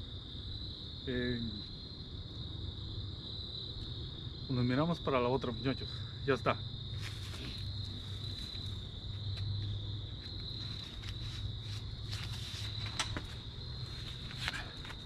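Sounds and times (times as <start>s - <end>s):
night insects chorus: 0.0s - 15.0s.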